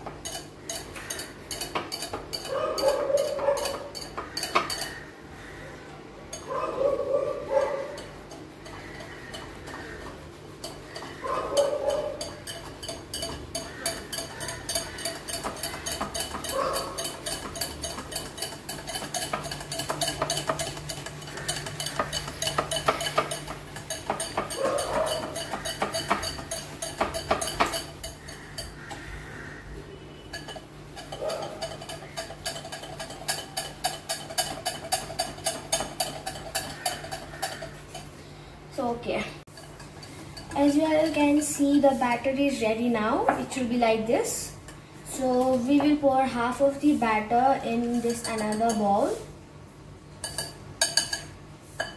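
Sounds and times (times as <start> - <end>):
whisk clinking against ceramic bowl: 0.1 - 5.0, 7.5 - 29.0, 30.2 - 38.2, 45.2 - 49.1, 50.2 - 51.9.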